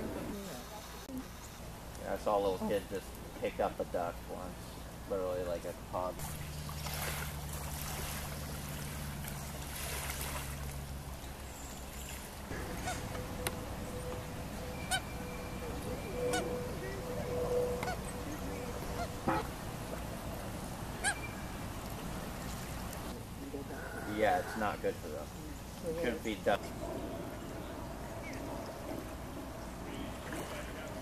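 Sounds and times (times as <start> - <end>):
steady low hum: 0.0 - 31.0
geese honking: 12.5 - 21.8.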